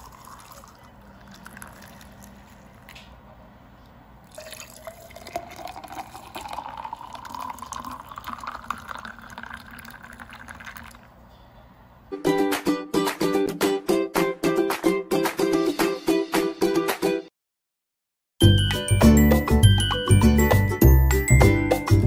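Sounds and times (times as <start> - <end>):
juice pouring into glass: 0.0 - 3.0, 4.2 - 11.2.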